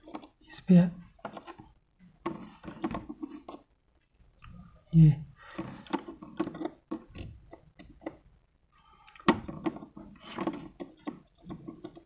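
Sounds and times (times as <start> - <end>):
test probes clicking and scraping: 9.0 - 12.0.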